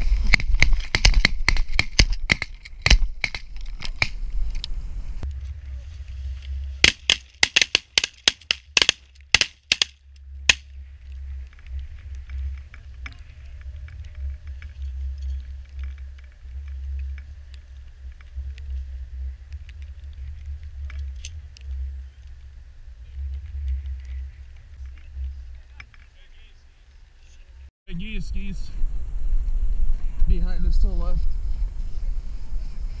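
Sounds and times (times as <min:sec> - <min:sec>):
shotgun blasts: 0:06.8 - 0:09.9.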